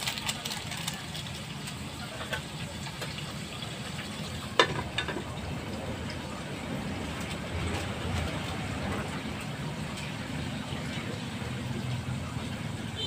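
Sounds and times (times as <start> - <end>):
food sizzling in a wok: 1.1 - 5.2
metal lid clanking on wok: 4.5 - 5.3.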